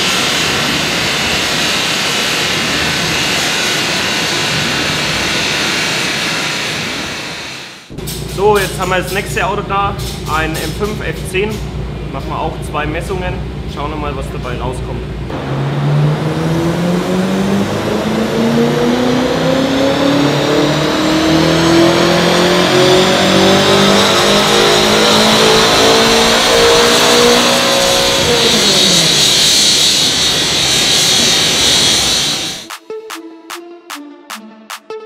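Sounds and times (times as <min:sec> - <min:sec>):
car engine revving on dyno: 0:00.0 - 0:08.3, 0:15.3 - 0:32.7
high whine: 0:00.0 - 0:33.6.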